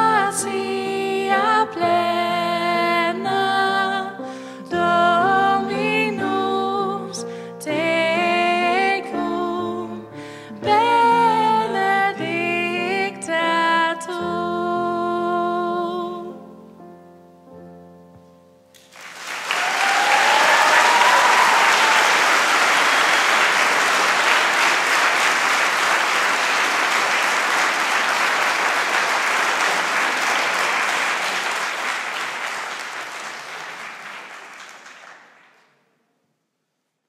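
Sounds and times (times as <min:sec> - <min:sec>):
audience applauding: 0:18.8 - 0:35.7.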